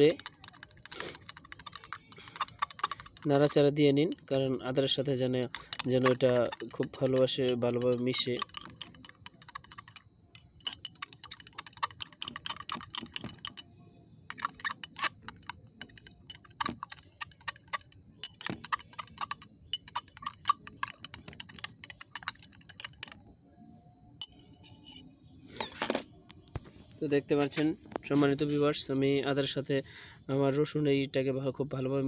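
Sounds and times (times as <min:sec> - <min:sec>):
knife clinking against glass: 0:05.4 - 0:13.7, 0:14.3 - 0:23.2.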